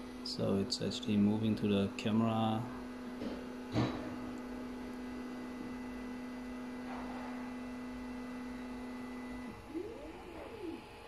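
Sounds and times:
stepper motors whining: 0:09.2 - 0:11.0.

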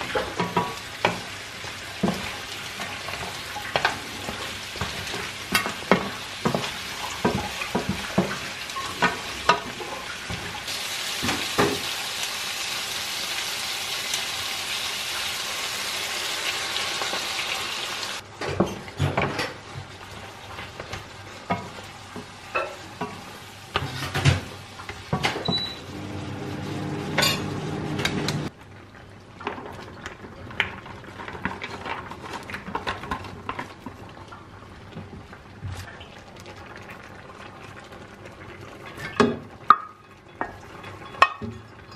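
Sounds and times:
food sizzling in a frying pan: 0:00.0 - 0:28.5.

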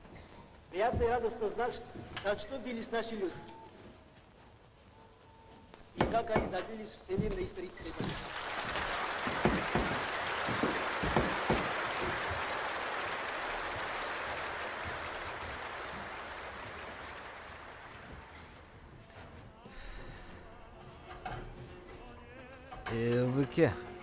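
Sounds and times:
sharp knocks: 0:05.9 - 0:08.2, 0:09.3 - 0:12.4
crowd applauding: 0:07.6 - 0:19.6.

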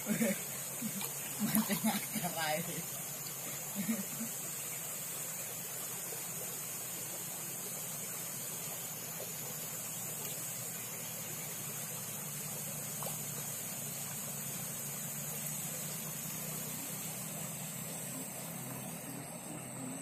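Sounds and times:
high-pitched hiss: 0:00.0 - 0:20.0
low hum: 0:08.0 - 0:20.0.

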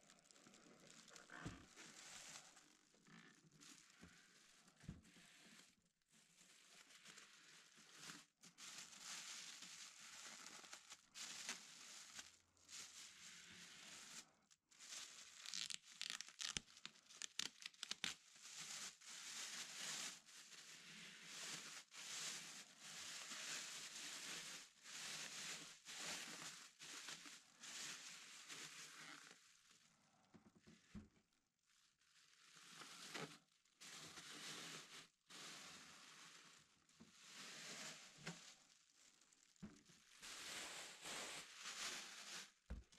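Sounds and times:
plastic bag crinkling: 0:14.1 - 0:20.6.

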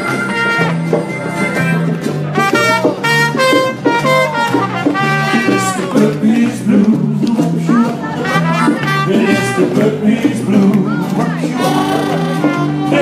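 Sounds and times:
trumpet lead: 0:00.0 - 0:01.2, 0:02.3 - 0:06.2, 0:08.1 - 0:10.0, 0:11.6 - 0:13.0
live blues band: 0:00.0 - 0:13.0
repeating bass line: 0:00.0 - 0:13.0.

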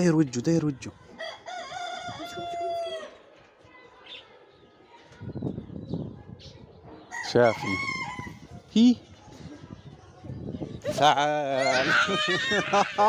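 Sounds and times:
rooster crowing: 0:01.2 - 0:03.1.

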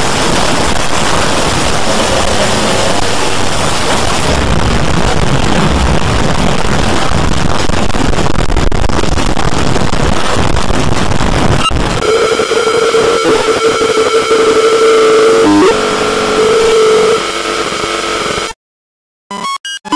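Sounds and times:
harsh distorted noise: 0:00.0 - 0:18.6
steady held tones: 0:12.0 - 0:18.6.

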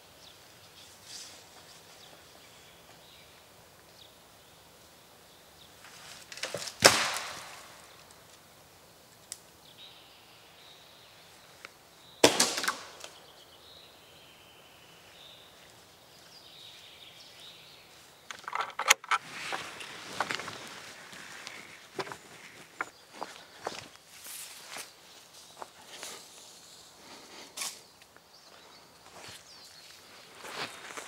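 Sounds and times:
loud sharp cracks: 0:06.5 - 0:07.9, 0:12.2 - 0:13.2
faint bird chirps: 0:13.1 - 0:18.4.

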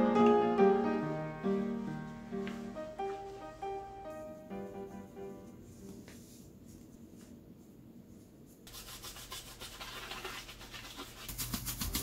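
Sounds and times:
brush scrubbing plastic lid: 0:08.7 - 0:12.0.

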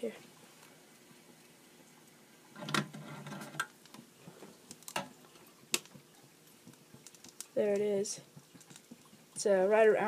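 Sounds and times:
metal tray scraping: 0:02.6 - 0:03.6.

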